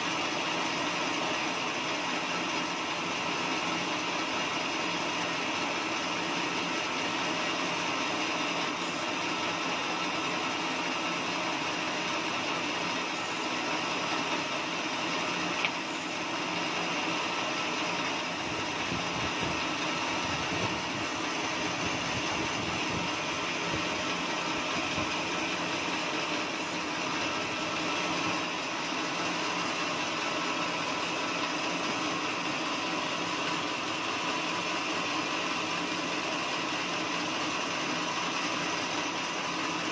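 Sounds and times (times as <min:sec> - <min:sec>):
band sawmill running: 0:00.0 - 0:39.9.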